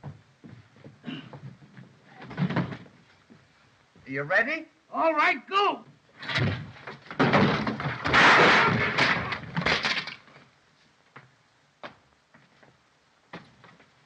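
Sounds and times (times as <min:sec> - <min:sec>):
bed frame crashing and clattering: 0:02.2 - 0:02.9, 0:06.2 - 0:10.4.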